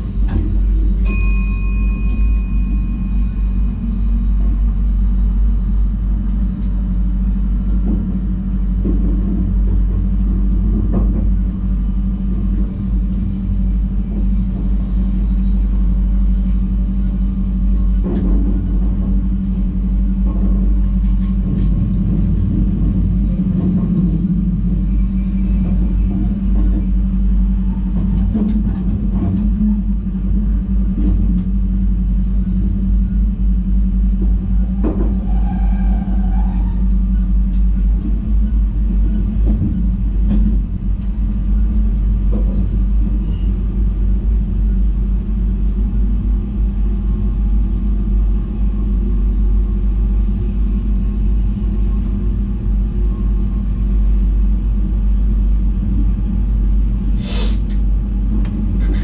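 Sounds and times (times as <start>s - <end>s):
train rumble and hum: 0.0s - 59.0s
ringing multi-tone chime: 1.0s - 3.6s.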